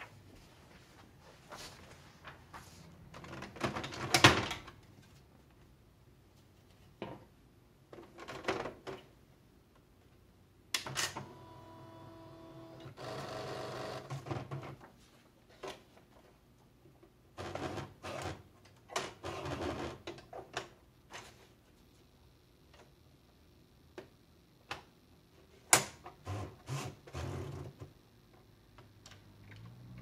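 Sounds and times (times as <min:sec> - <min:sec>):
electronic typewriter motor whirring: 0:11.2 - 0:14.2, 0:26.2 - 0:27.7.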